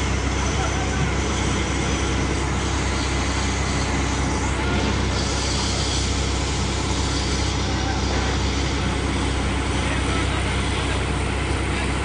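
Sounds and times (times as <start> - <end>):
concrete pump and mixer running: 0.0 - 12.0.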